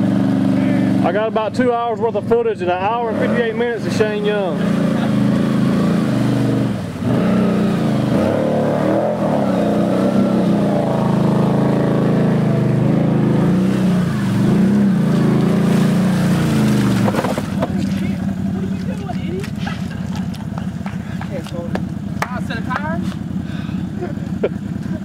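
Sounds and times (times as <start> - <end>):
quad engine revving: 0.0 - 25.0.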